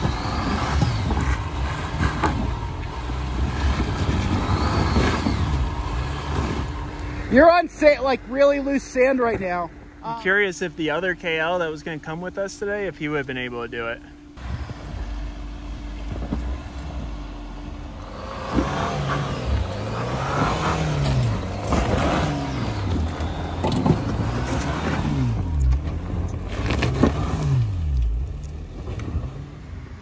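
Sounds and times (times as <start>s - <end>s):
engine revving: 0.0s - 8.7s, 14.4s - 30.0s
rocks knocking under tires: 15.8s - 17.2s.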